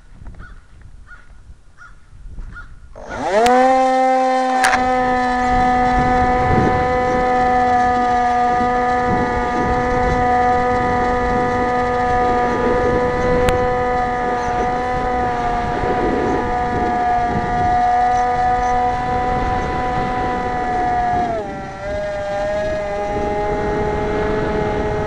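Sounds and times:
electric motor and propeller whine: 2.5 - 25.0
sharp clicks: 4.5 - 5.0, 7.4 - 15.0.

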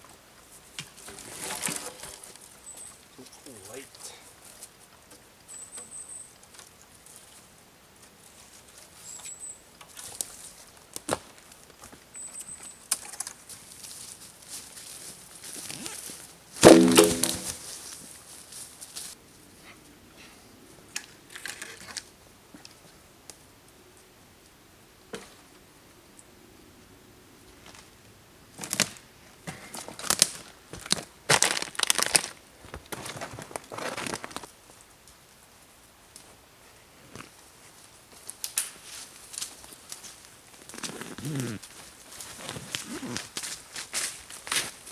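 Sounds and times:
footsteps crunching on twigs: 13.4 - 19.2, 29.8 - 34.5
twigs cracking: 16.6 - 18.0, 29.8 - 34.5, 38.1 - 44.8.

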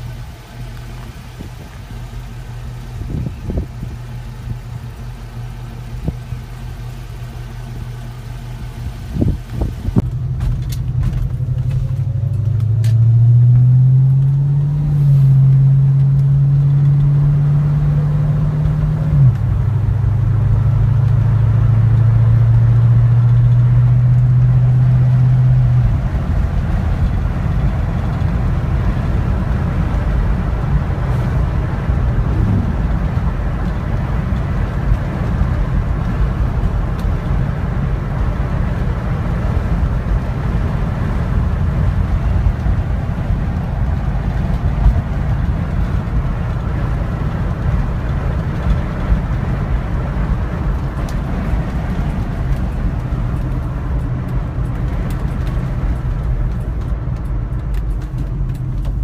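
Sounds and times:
tyre and wind rumble: 0.0 - 7.9, 8.5 - 59.0
car engine drone: 0.0 - 59.0.

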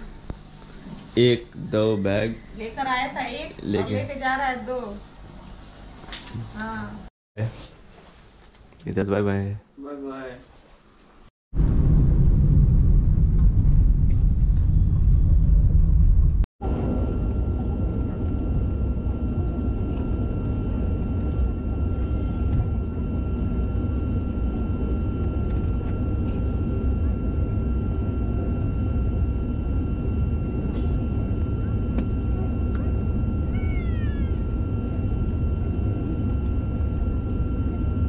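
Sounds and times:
thin high whine: 16.6 - 38.0.

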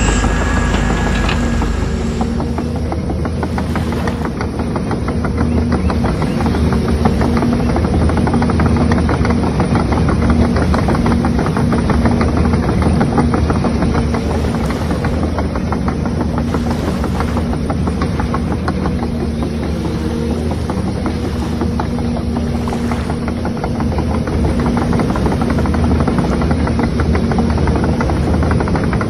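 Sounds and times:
model machines mechanical drone: 0.0 - 3.0.

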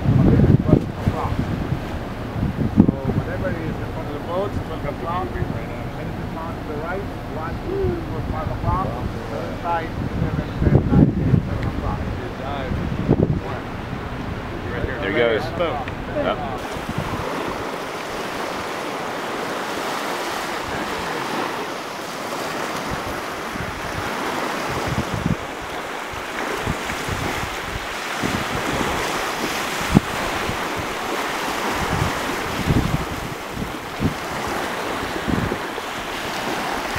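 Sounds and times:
sea water rushing: 0.0 - 36.9
wind buffeting microphone: 0.0 - 36.9.

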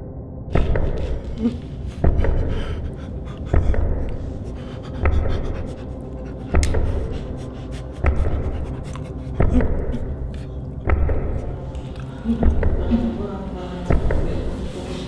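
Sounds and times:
low thumps with sharp clicks: 0.5 - 13.2, 13.8 - 14.5
breathing: 0.9 - 10.9, 11.5 - 13.2.

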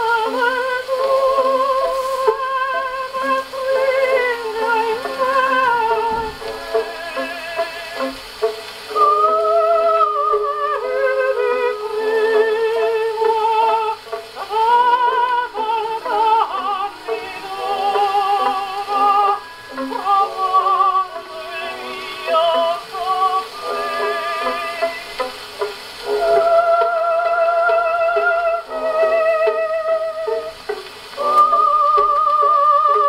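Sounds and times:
gramophone playing vocal melody: 0.0 - 33.0.

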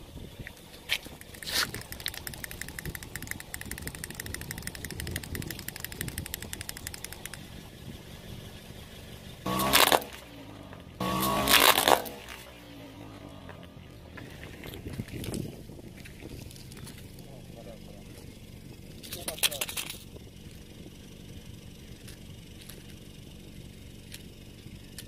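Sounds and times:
car engine revving: 0.0 - 25.0
wind-up toy clockwork clicking: 1.2 - 7.4.

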